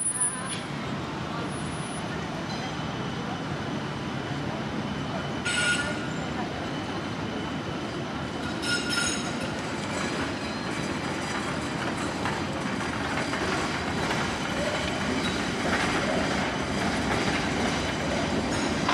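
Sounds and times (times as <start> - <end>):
tram rolling on rails: 0.0 - 18.9
metallic wheel squeal: 8.6 - 9.4.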